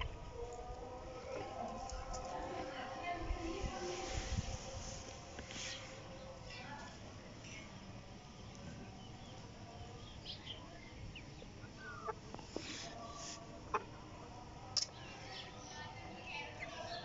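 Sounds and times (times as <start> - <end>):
chickens calling: 7.7 - 17.0.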